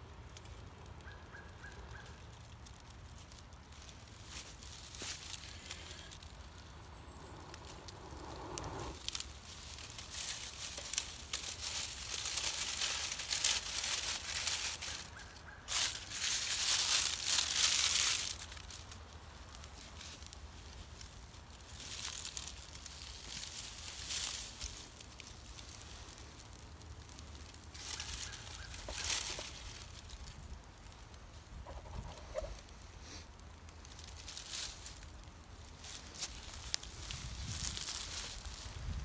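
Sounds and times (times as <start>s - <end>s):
dry tinder rustling and crackling: 0.0s - 39.0s
hissing breaths blowing fire: 3.7s - 12.1s, 32.0s - 34.1s.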